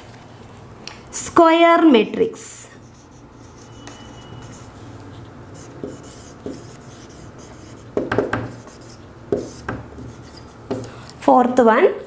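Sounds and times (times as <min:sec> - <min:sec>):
marker writing on whiteboard: 0:02.8 - 0:10.9
marker squeak: 0:02.9 - 0:07.8.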